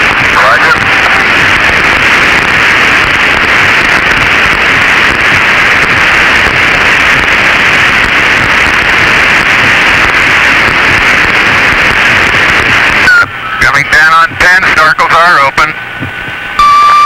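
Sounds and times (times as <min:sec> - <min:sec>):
radio static hiss: 0:00.0 - 0:17.0.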